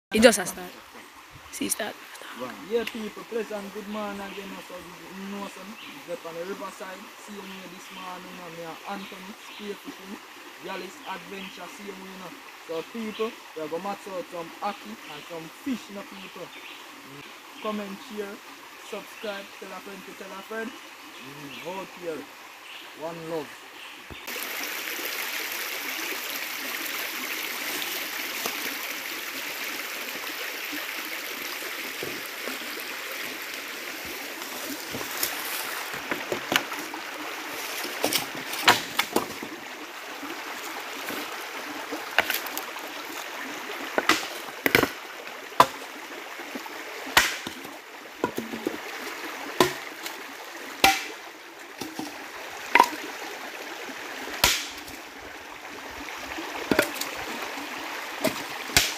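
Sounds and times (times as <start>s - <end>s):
stream water rushing: 0.1s - 58.9s
wood knocking and cracking: 34.8s - 36.9s, 37.8s - 39.5s, 42.1s - 42.6s, 44.0s - 45.0s, 45.6s - 45.8s, 47.2s - 48.8s, 49.6s - 50.2s, 50.8s - 51.2s, 51.8s - 53.0s, 54.4s - 55.0s, 56.7s - 57.1s.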